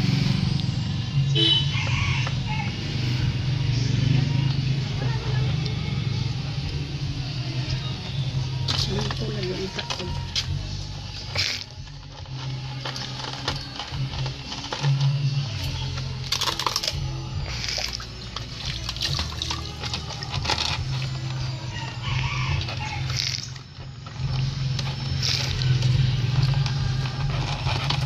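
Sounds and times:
background music with bass: 0.0s - 28.0s
water splashing in basin: 16.4s - 21.1s.

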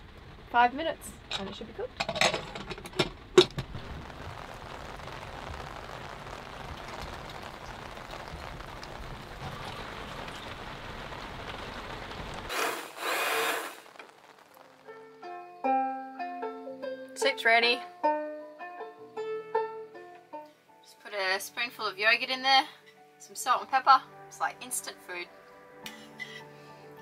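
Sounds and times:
rain on deck and water: 0.0s - 15.6s, 17.2s - 17.8s, 21.0s - 25.2s
short loud hiss: 12.5s - 14.0s.

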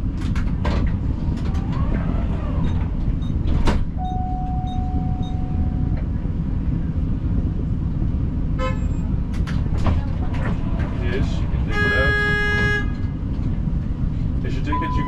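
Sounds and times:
street traffic rumble: 0.0s - 15.0s
tram noise: 0.0s - 15.0s
held tone: 4.0s - 6.0s.

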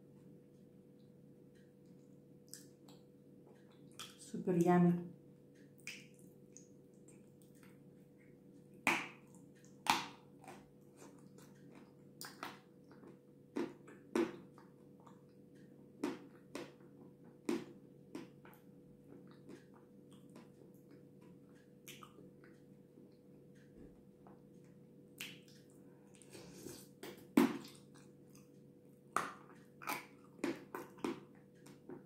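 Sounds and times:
faint steady hum: 0.0s - 32.0s
soft chewing: 0.1s - 4.4s, 5.5s - 32.0s.

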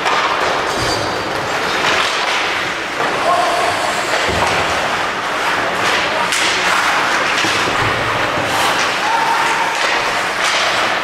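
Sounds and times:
knocks of sticks puck and boards: 0.0s - 11.0s
skates scraping on ice: 1.4s - 11.0s
crowd noise: 2.4s - 11.0s.

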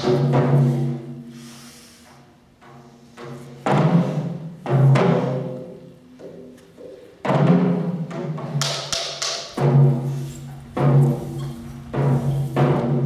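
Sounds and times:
timpani-like drum hits: 7.2s - 13.0s.

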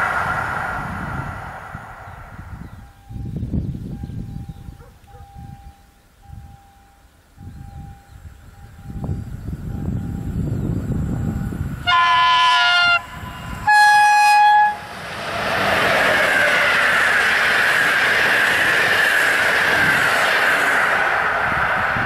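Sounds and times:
train wheels rushing on rails: 0.0s - 4.3s, 7.4s - 22.0s
train horn: 11.8s - 14.9s.

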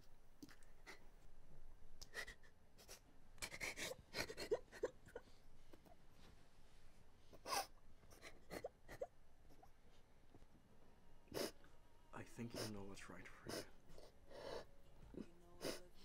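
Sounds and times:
woman sobbing: 2.0s - 5.4s, 14.3s - 16.0s.

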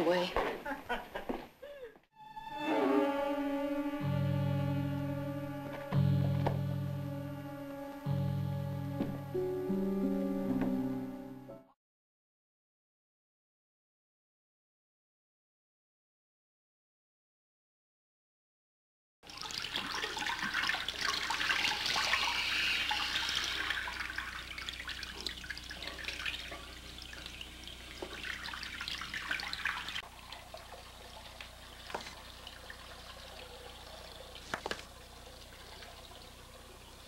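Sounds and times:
tap water running into basin: 19.2s - 37.0s
water trickling: 19.2s - 37.0s.

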